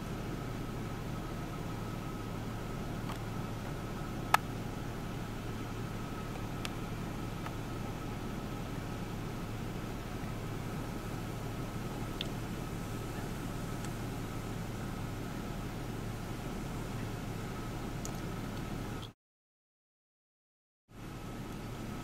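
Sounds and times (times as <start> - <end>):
steady hiss: 0.0 - 18.8
low hum: 0.0 - 19.1
faint ticks: 12.2 - 12.4.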